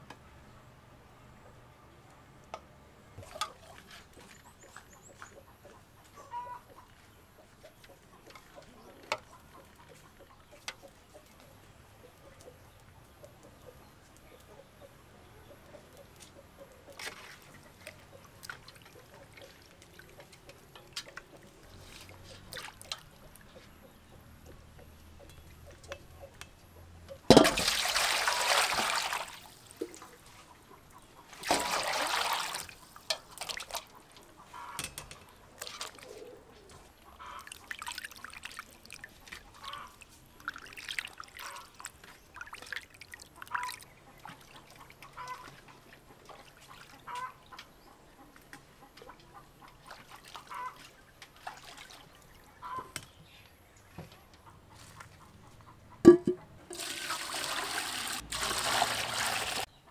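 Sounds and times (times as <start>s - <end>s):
water pouring into a metal bowl: 56.7s - 59.7s.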